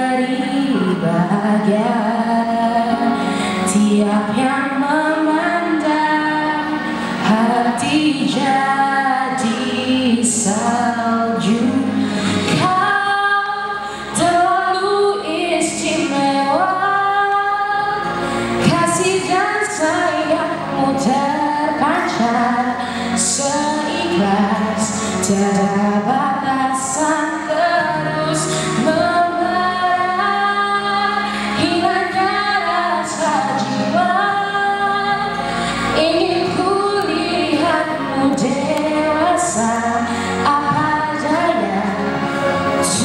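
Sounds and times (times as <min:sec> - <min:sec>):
backing music: 0:00.0 - 0:43.0
woman singing into a microphone: 0:00.0 - 0:43.0.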